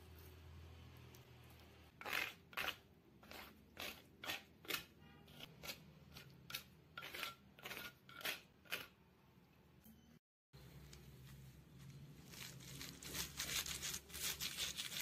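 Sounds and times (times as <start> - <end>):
paste scraping on stone mortar: 1.9 - 9.0.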